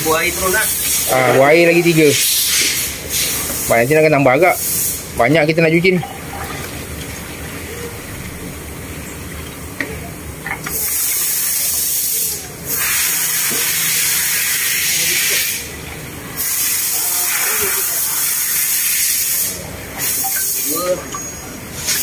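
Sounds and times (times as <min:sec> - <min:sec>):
loud spraying hiss: 0:00.0 - 0:05.2, 0:10.7 - 0:15.7, 0:16.4 - 0:21.0, 0:21.7 - 0:22.0
low steady hum: 0:00.0 - 0:12.8.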